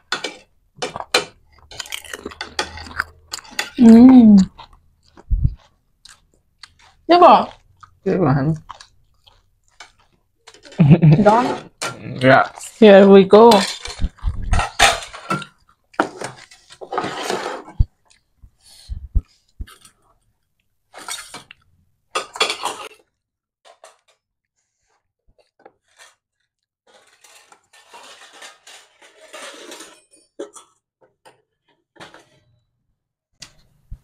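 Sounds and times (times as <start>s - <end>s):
utensils clinking on plates: 0.1s - 3.9s, 13.4s - 17.7s, 22.2s - 23.0s, 26.9s - 30.8s
crunching and chewing: 0.9s - 3.8s, 4.4s - 10.8s, 17.7s - 18.4s.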